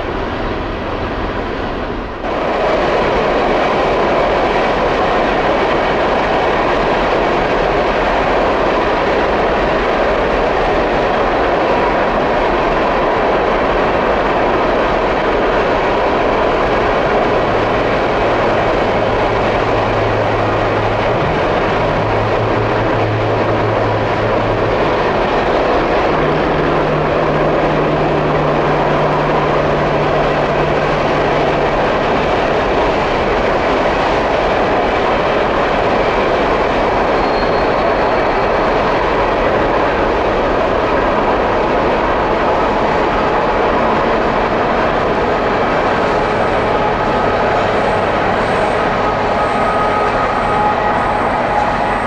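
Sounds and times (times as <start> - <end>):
train wheels on rail: 0.0 - 52.0
low engine drone: 16.4 - 34.8, 41.2 - 52.0.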